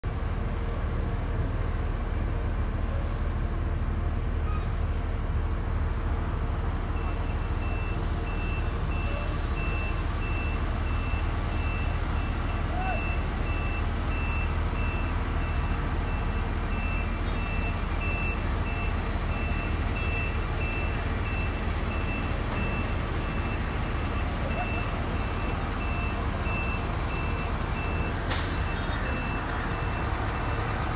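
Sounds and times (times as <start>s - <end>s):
heavy vehicle engine rumbling: 0.0s - 30.9s
reversing alarm beeps: 7.0s - 30.8s.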